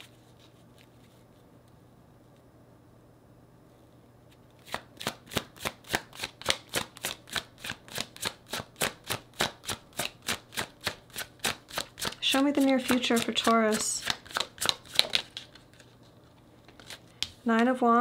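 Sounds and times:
cards shuffling: 0:04.3 - 0:17.3.

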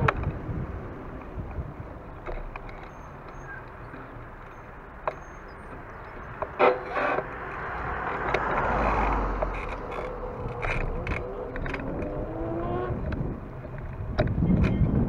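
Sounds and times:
car passing: 0:00.0 - 0:14.1
vehicle engine pulling away: 0:02.9 - 0:13.6.

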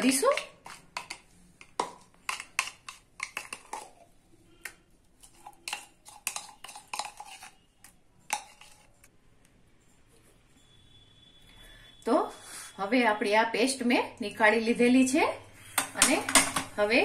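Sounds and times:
spoon scraping and knocking on jar: 0:00.0 - 0:09.1.

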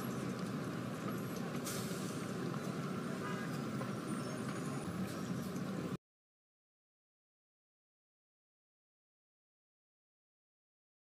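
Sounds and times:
road traffic rumble: 0:00.0 - 0:06.0.

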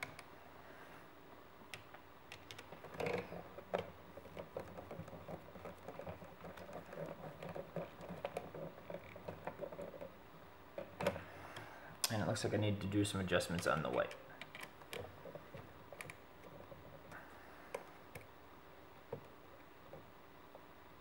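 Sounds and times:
wires being handled: 0:01.7 - 0:12.4, 0:13.2 - 0:18.3.

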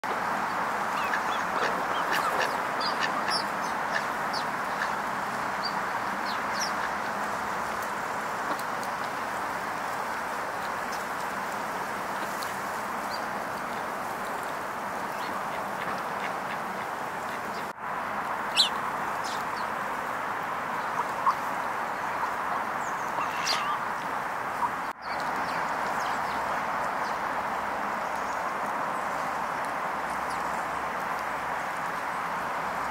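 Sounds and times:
steady outdoor hiss: 0:00.0 - 0:32.9
duck calling: 0:01.0 - 0:05.0, 0:23.1 - 0:23.8.

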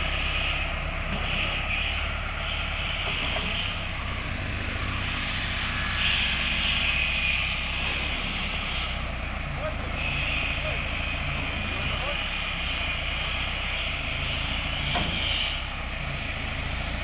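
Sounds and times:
tractor diesel engine running: 0:00.0 - 0:17.0
hydraulic hiss: 0:05.2 - 0:09.1.

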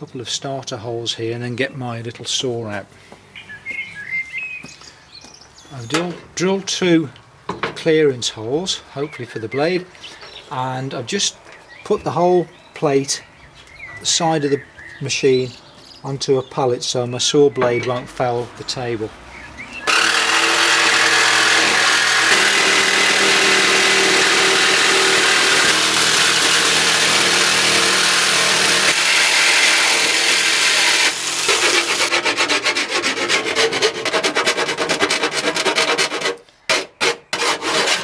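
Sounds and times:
hand file rasping metal: 0:19.9 - 0:38.0
jigsaw cutting sheet metal: 0:19.9 - 0:38.0.

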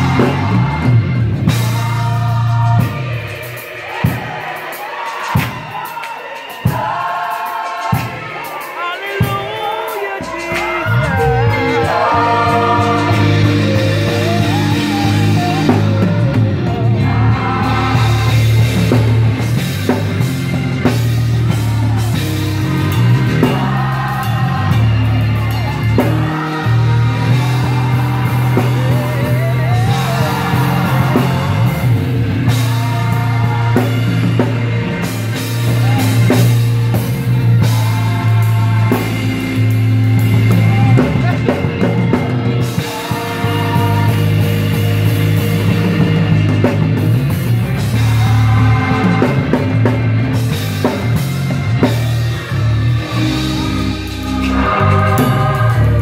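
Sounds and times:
heavy held bass: 0:00.0 - 0:04.7, 0:10.2 - 0:56.0
gospel band playing: 0:00.0 - 0:56.0
voices singing: 0:00.0 - 0:56.0.

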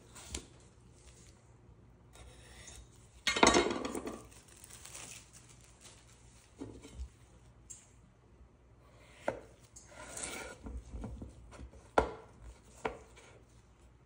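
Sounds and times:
plastic wrap crinkling: 0:04.0 - 0:07.7.

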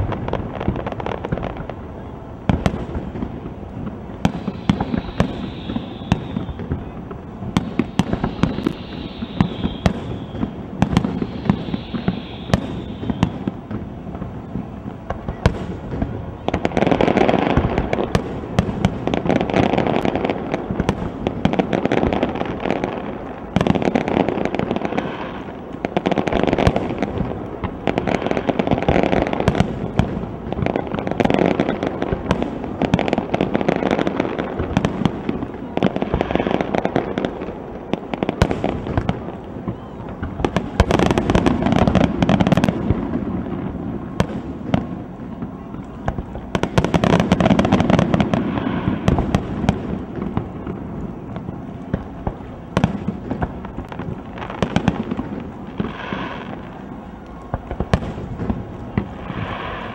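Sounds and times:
dense firework crackle: 0:00.0 - 0:59.9
firework shells bursting: 0:02.4 - 0:22.3.

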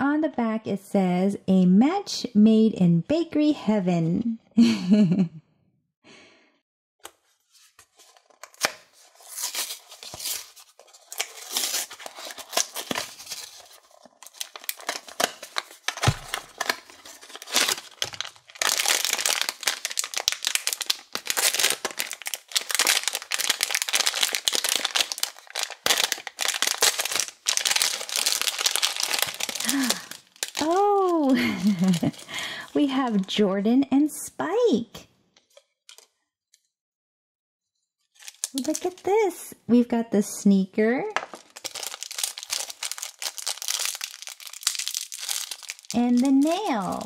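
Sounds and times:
foil wrapper crinkling: 0:07.6 - 0:33.3, 0:38.1 - 0:39.2, 0:41.2 - 0:47.0
cardboard box tearing open: 0:08.0 - 0:29.7.

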